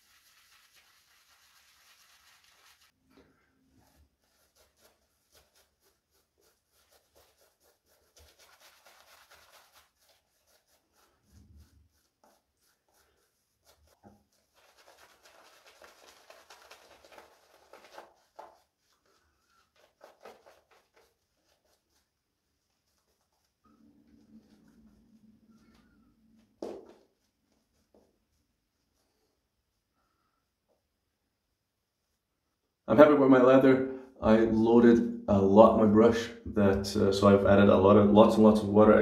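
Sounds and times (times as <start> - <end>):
shaving brush scrubbing: 0.0 - 3.0, 3.7 - 25.8.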